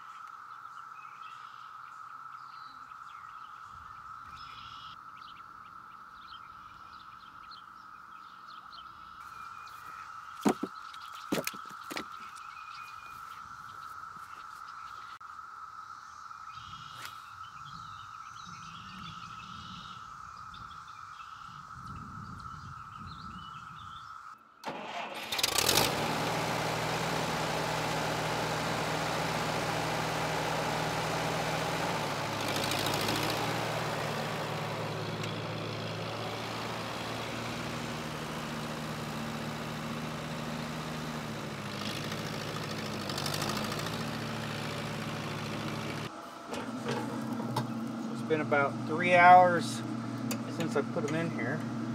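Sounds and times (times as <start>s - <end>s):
tractor engine running: 10.4s - 12.4s, 24.6s - 51.9s.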